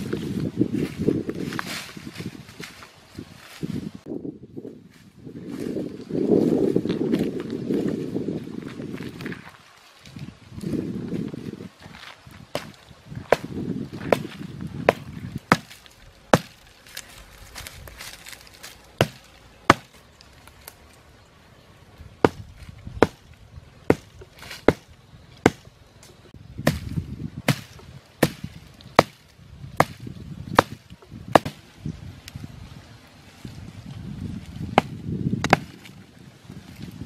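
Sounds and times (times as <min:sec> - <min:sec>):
dry brush rustling: 0:00.0 - 0:04.0, 0:04.9 - 0:21.1
chopping strikes on wood: 0:14.9 - 0:16.6, 0:19.0 - 0:20.0, 0:23.0 - 0:23.3, 0:23.9 - 0:25.7, 0:26.6 - 0:31.6, 0:34.7 - 0:35.8.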